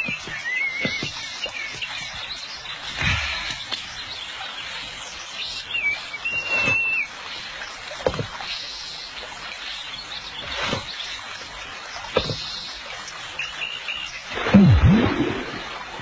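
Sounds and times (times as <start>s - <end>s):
bird chirps: 0.0s - 2.4s
soft river hiss: 0.0s - 16.0s.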